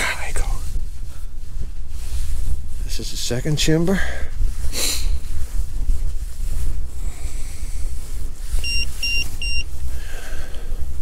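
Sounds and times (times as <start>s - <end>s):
high electronic beeps: 8.6s - 9.6s.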